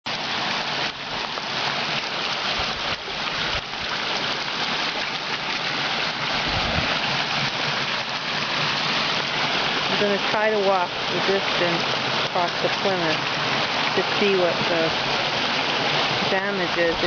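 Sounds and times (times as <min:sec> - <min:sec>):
water rushing down a cascade: 0:00.1 - 0:17.0
low bumps: 0:06.3 - 0:07.5.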